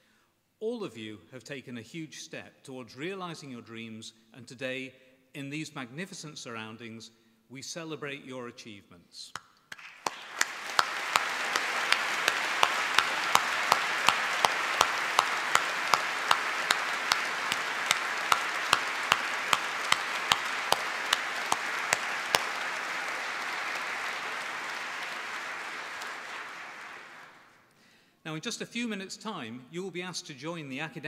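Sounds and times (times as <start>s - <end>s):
audience applauding: 9.7s - 27.6s
close person clapping: 9.7s - 27.6s.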